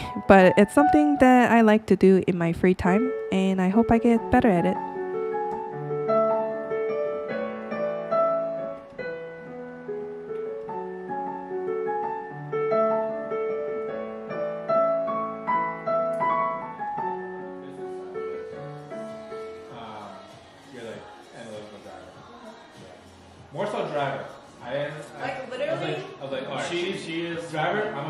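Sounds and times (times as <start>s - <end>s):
digital piano notes and chords: 0.0s - 22.2s.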